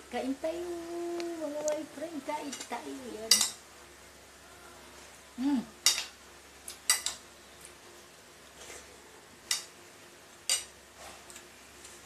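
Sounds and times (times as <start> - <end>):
person humming: 5.4 - 5.8.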